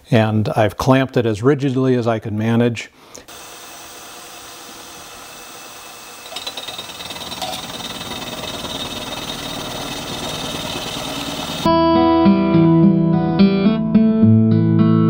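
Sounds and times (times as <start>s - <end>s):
end mill cutting steel: 3.3s - 11.7s
milling machine spindle running: 3.3s - 11.7s.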